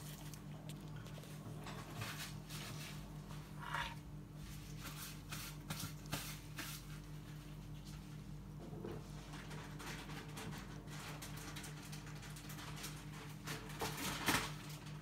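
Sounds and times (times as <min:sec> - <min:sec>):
spoon scraping salad in bowl: 0:00.0 - 0:07.0
steady low hum: 0:00.0 - 0:10.6.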